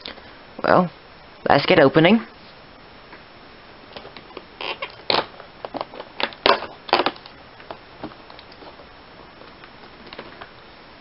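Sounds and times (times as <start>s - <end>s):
cardboard tearing and crackling: 4.3s - 7.4s.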